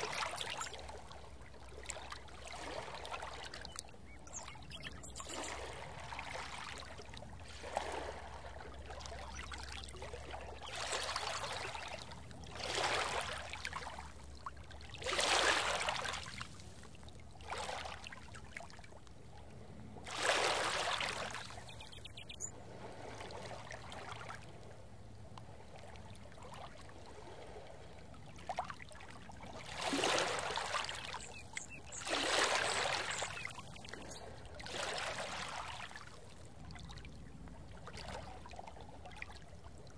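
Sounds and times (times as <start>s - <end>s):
rushing water: 0.0s - 7.1s, 29.6s - 36.1s.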